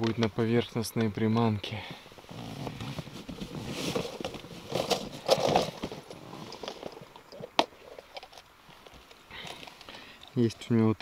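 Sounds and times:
irregular rustling: 1.9s - 10.7s.

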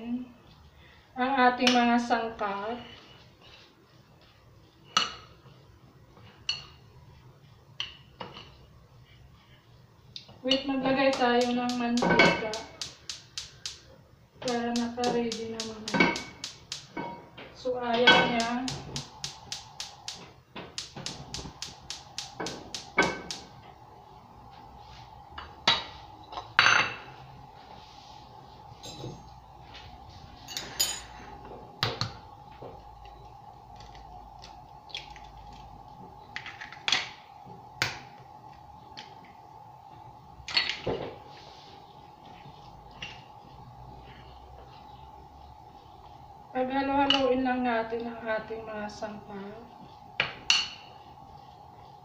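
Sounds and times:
faint steady hum: 0.0s - 52.0s
gas stove igniter clicking: 11.0s - 17.1s, 17.9s - 23.6s.

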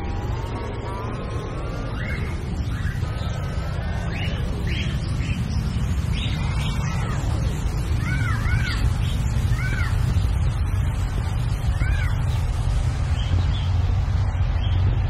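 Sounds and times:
steady low rumble: 0.0s - 15.0s
echoing chirps: 0.4s - 10.0s.

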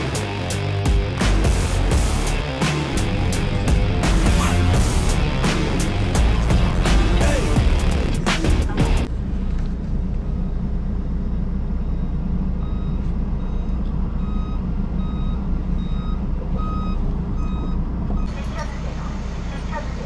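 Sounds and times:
diesel truck engine rumbling: 0.0s - 20.0s
reversing alarm beeping: 10.2s - 19.6s.

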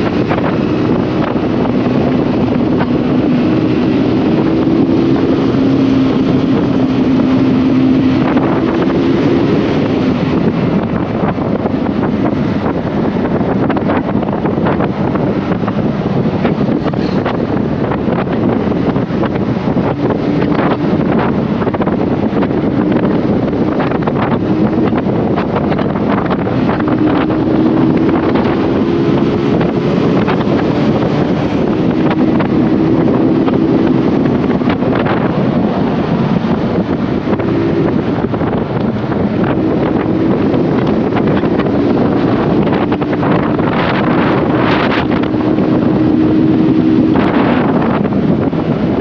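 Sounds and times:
motorcycle engine running: 0.0s - 49.0s
wind buffeting microphone: 0.0s - 49.0s.

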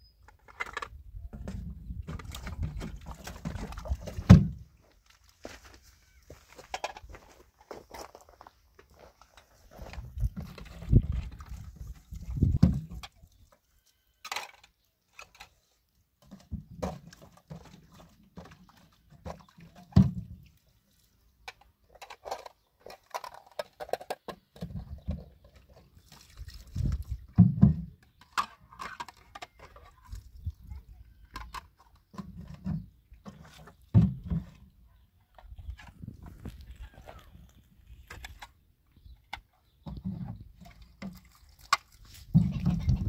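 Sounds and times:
water pouring and splashing: 2.0s - 5.4s, 9.2s - 14.5s, 15.1s - 21.4s, 25.4s - 27.8s, 40.5s - 43.0s.

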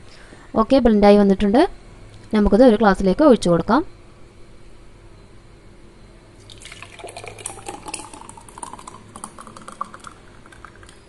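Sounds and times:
milkshake pouring into glass: 6.4s - 11.0s.

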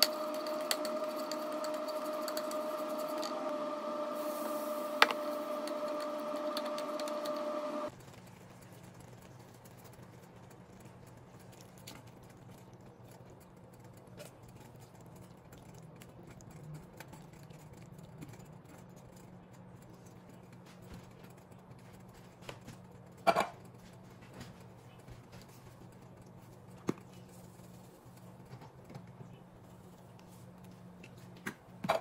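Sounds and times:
small motor humming: 0.0s - 7.9s.

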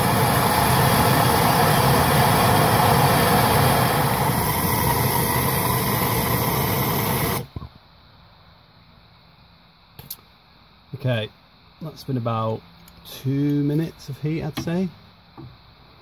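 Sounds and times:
propane torch hissing roar: 0.0s - 7.6s.

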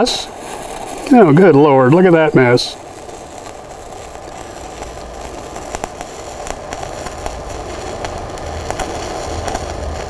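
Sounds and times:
welding arc hissing and crackling: 0.0s - 10.0s.

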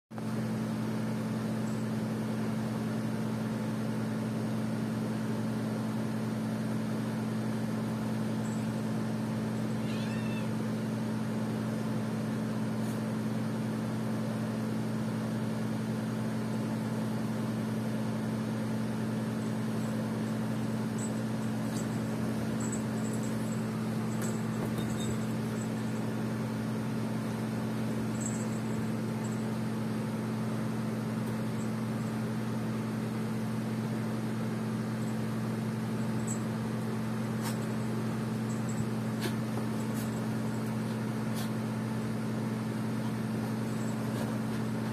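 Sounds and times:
short high-pitched animal cry: 9.7s - 10.6s
steady low two-pitch hum: 17.3s - 44.9s.

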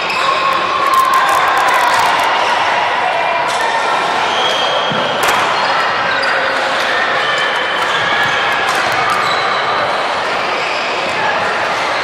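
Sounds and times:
echoing din of busy hall: 0.0s - 12.0s
clicks: 0.9s - 2.3s.

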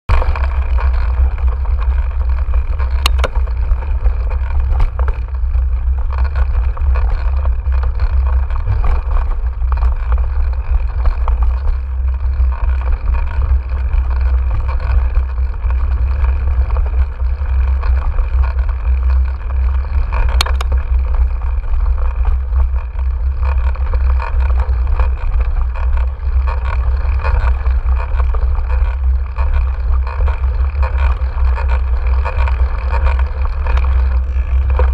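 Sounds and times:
wind buffeting microphone: 0.1s - 18.1s
bike rattling over bumps: 0.1s - 34.9s.

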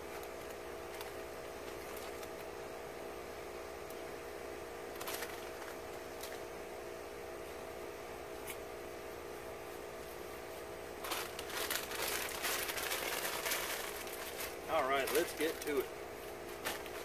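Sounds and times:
chip bag crinkling: 0.1s - 2.5s, 4.9s - 6.4s, 11.0s - 15.9s, 16.5s - 17.0s.

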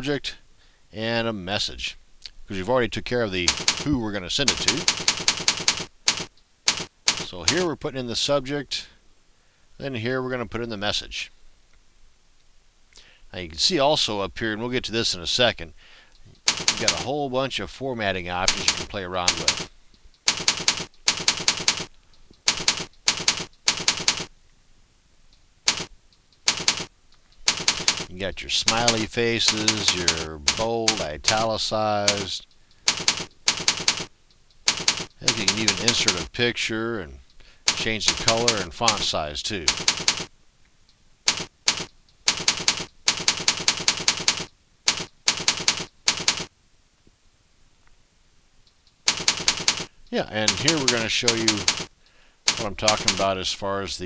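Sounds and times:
keyboard typing: 3.4s - 7.6s, 16.2s - 17.1s, 18.4s - 24.3s, 25.7s - 36.3s, 37.3s - 40.3s, 41.3s - 46.5s, 48.7s - 51.9s, 52.5s - 53.4s.

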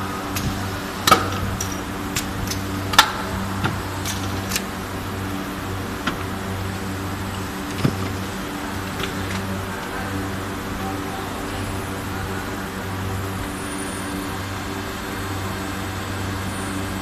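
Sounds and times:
machine motor hum: 0.0s - 17.0s
metallic clicks and clunks: 0.3s - 4.8s.

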